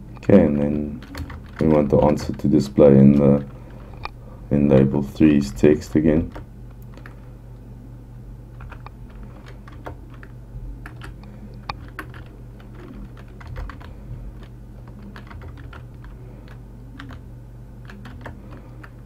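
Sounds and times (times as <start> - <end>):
keyboard typing clicks: 1.0 - 2.4, 8.6 - 17.2, 17.8 - 19.0.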